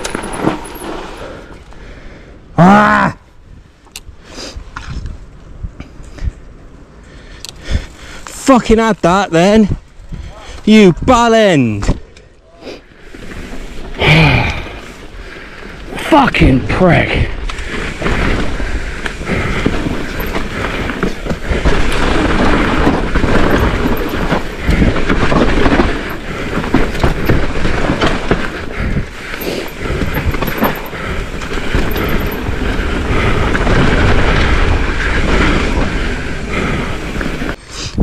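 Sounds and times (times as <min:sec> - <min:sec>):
bike knocking over rocks: 0:00.0 - 0:01.2, 0:18.0 - 0:34.7
bike tyres rolling and rattling: 0:00.0 - 0:02.4, 0:12.9 - 0:16.1, 0:16.7 - 0:37.7.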